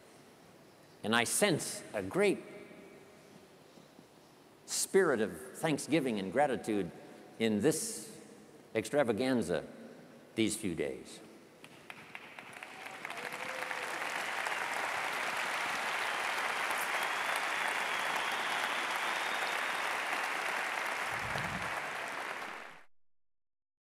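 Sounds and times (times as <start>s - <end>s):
audience applauding: 11.7s - 22.9s.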